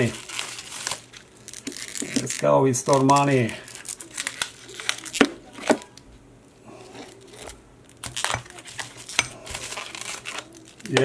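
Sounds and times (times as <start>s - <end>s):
plastic wrap crinkling: 0.0s - 6.1s, 6.8s - 11.0s.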